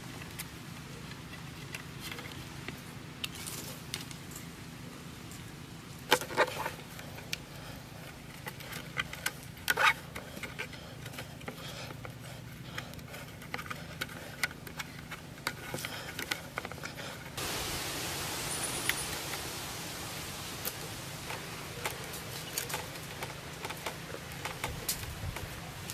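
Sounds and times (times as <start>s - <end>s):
scrapes and clicks on wooden poles: 6.1s - 17.4s, 20.6s - 25.9s
steady hiss: 15.5s - 25.9s.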